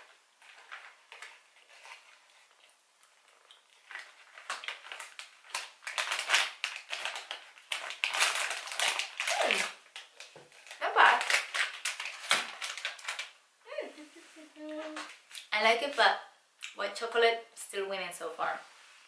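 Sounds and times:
person chewing: 0:00.4 - 0:05.8.

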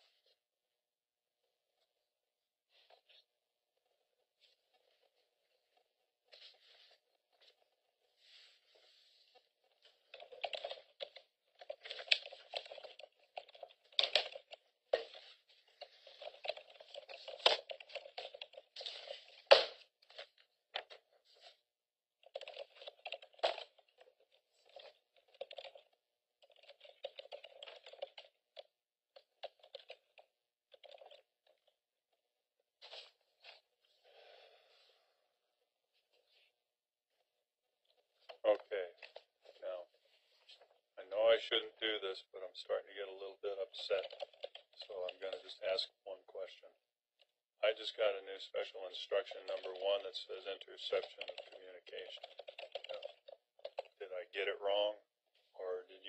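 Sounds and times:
paper rustling: 0:04.4 - 0:21.6, 0:32.8 - 0:35.1.

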